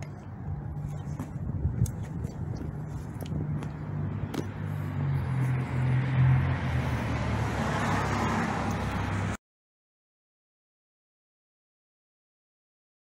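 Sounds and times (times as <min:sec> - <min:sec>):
road noise: 0:00.0 - 0:09.4
vehicle engine humming: 0:00.0 - 0:09.4.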